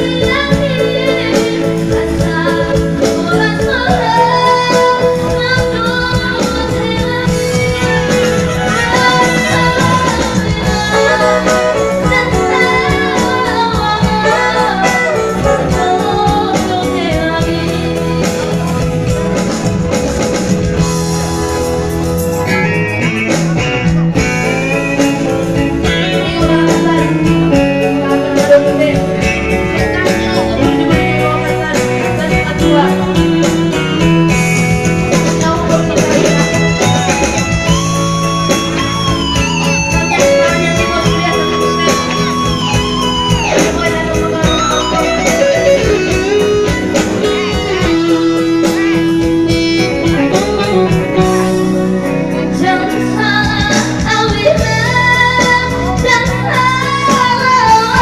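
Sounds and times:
girl singing: 0:00.0 - 0:18.4, 0:25.8 - 0:34.1, 0:35.4 - 0:36.5, 0:41.8 - 0:45.9, 0:50.3 - 0:58.0
electronic keyboard melody: 0:00.0 - 0:58.0
drum beat: 0:05.6 - 0:51.6.

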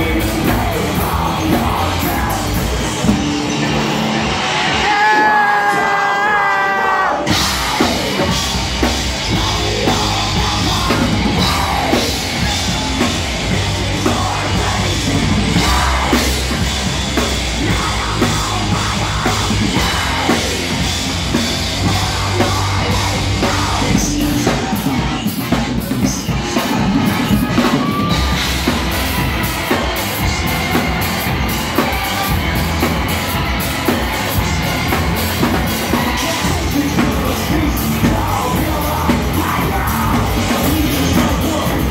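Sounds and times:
distorted electric guitar: 0:00.0 - 0:41.9
pounding drum kit: 0:00.0 - 0:41.9
person yelling vocals: 0:04.8 - 0:07.3.

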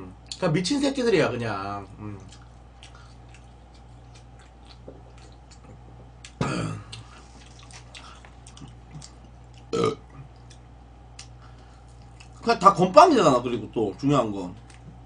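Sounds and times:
faint chewing: 0:01.8 - 0:12.5, 0:14.5 - 0:15.0
man burping: 0:06.4 - 0:07.0, 0:09.7 - 0:10.2.

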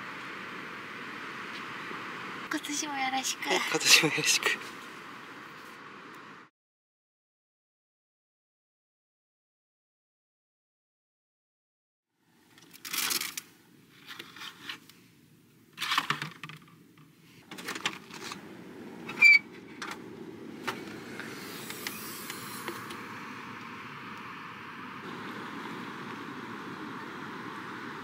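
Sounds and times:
wind: 0:00.0 - 0:06.5, 0:12.1 - 0:28.0.

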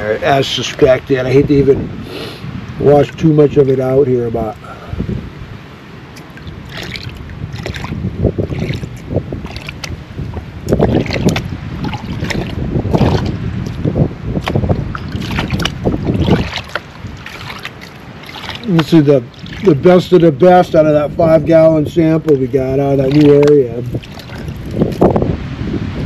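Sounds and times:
water sloshing in gold pan: 0:06.2 - 0:10.0, 0:10.8 - 0:13.8, 0:14.4 - 0:20.2, 0:22.5 - 0:25.0.

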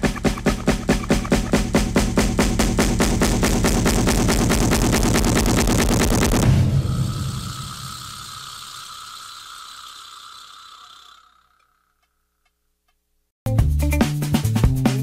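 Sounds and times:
fast drum beat: 0:00.0 - 0:08.9, 0:13.5 - 0:15.0.

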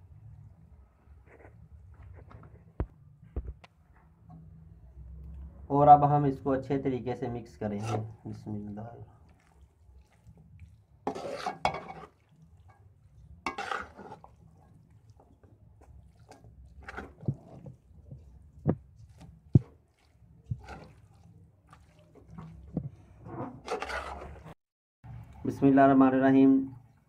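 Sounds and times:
spatula scraping a metal wok: 0:07.7 - 0:08.2, 0:11.0 - 0:12.8, 0:13.4 - 0:14.5, 0:16.2 - 0:17.8, 0:20.5 - 0:24.6.

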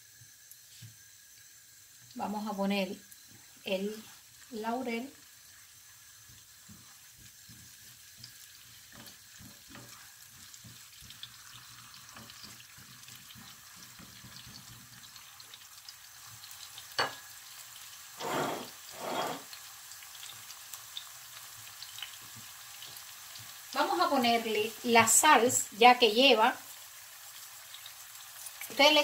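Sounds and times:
vegetables sizzling in oil: 0:00.0 - 0:29.0
spatula scraping a pan: 0:18.2 - 0:19.6.

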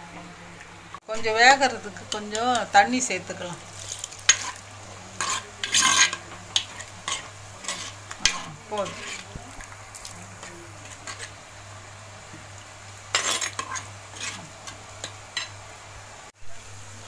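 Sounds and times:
ladle scraping a pot: 0:03.7 - 0:11.4, 0:13.1 - 0:15.5.

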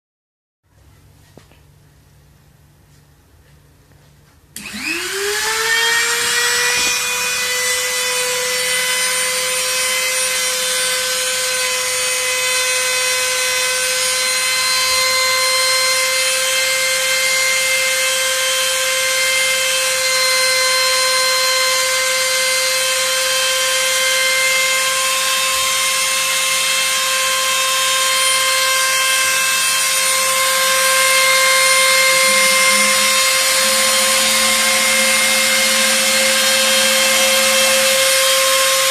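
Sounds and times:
high-speed spindle whine: 0:04.6 - 0:38.9
low hum: 0:30.0 - 0:38.9.

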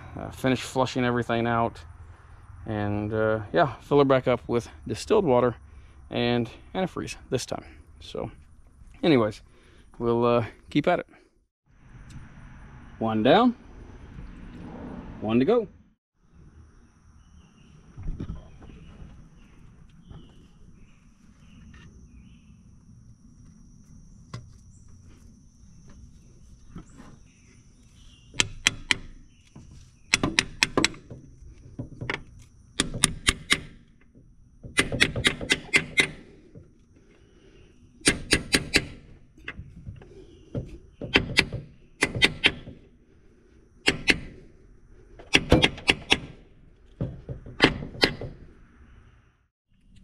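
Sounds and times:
hammer striking metal plug: 0:38.0 - 0:39.0.

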